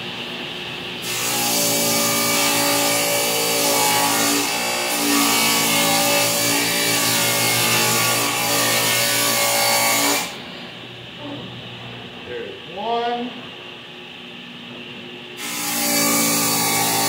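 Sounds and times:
table saw cutting board: 1.0s - 10.4s, 15.4s - 17.0s
table saw humming: 1.0s - 10.5s, 15.4s - 17.0s.

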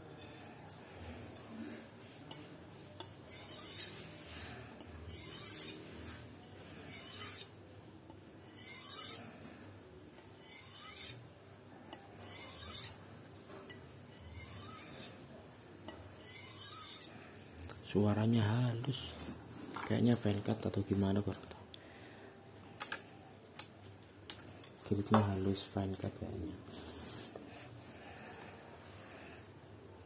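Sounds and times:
knife scraping on sharpening steel: 0.0s - 1.6s, 2.2s - 11.3s, 11.9s - 15.2s, 15.8s - 17.2s.

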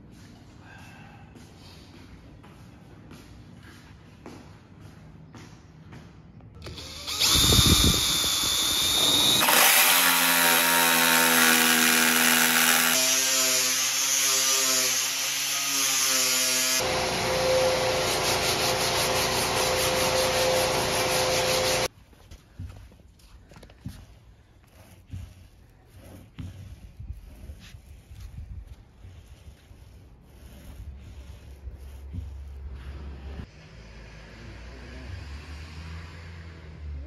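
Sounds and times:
electric drill whining: 6.6s - 13.1s, 16.7s - 21.9s
power tools running: 6.6s - 14.3s, 14.9s - 21.9s
angle grinder on wood: 6.6s - 21.9s, 29.1s - 33.4s.

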